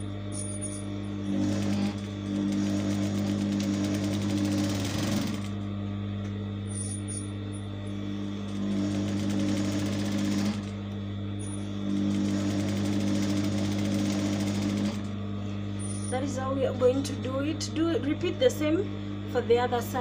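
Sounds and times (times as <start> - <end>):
sewing machine stitching: 1.3 - 5.5, 8.5 - 10.8, 11.8 - 15.1.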